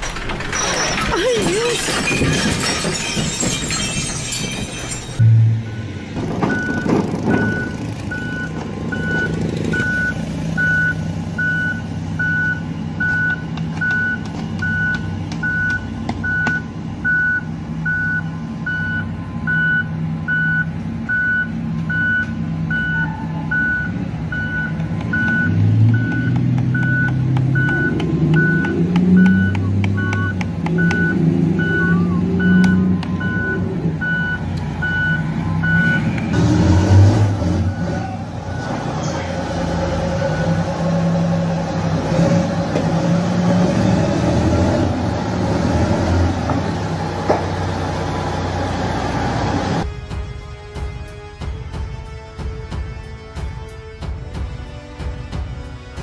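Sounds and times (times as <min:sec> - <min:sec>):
diesel engine droning: 0:01.8 - 0:52.4
reversing alarm beeping: 0:05.2 - 0:36.4.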